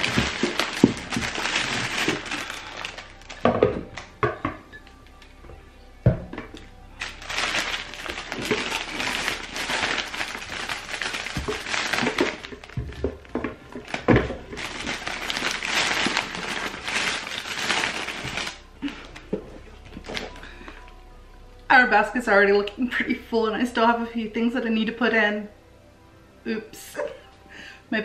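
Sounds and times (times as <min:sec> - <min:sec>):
paper bag rustling: 0:00.0 - 0:04.2, 0:07.0 - 0:21.0.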